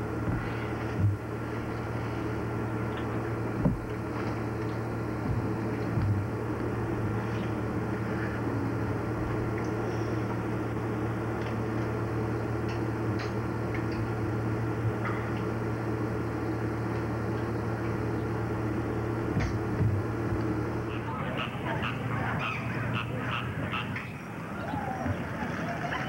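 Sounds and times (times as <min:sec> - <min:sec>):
low hum and hiss: 0:00.0 - 0:26.0.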